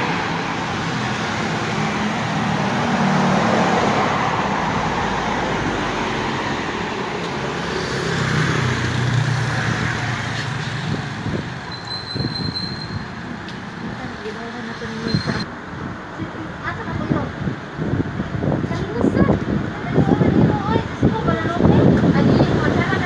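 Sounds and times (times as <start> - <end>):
motorcycles driving by: 0.0 - 11.9
cars driving by: 0.0 - 23.0.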